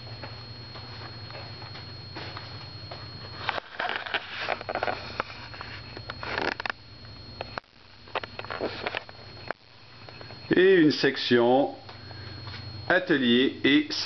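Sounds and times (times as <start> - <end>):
steady low hum: 0.0 - 14.0
thin high whine: 0.0 - 14.0
camcorder handling rustling: 3.5 - 6.8.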